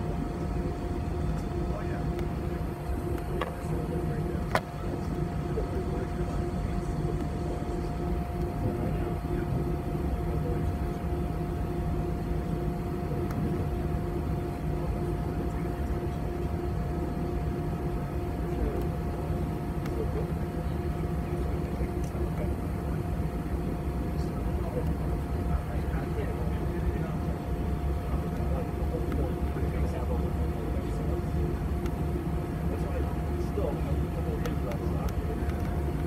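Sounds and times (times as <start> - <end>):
jet engines humming in cabin: 0.0 - 36.0
click: 34.4 - 35.8.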